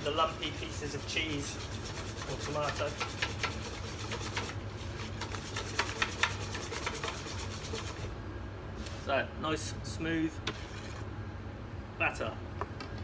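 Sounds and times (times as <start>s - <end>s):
whisk scraping metal bowl: 0.0s - 8.2s, 10.4s - 11.1s.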